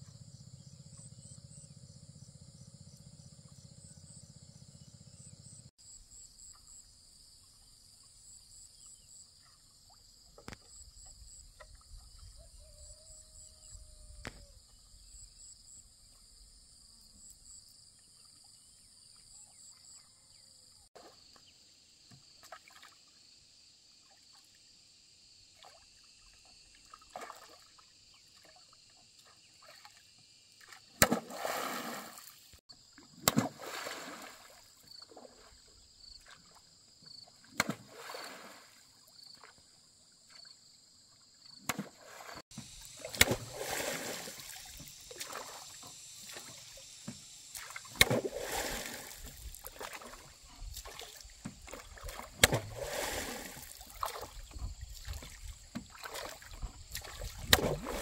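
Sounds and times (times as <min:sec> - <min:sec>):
oar blade swishing and splashing: 0:26.8 - 0:27.8, 0:30.6 - 0:35.6, 0:37.4 - 0:38.8, 0:41.6 - 0:58.0.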